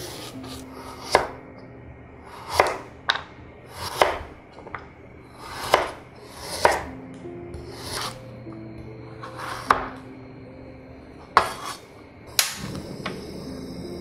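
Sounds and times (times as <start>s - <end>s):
knife slicing carrot: 3.7s - 4.3s, 5.4s - 6.9s.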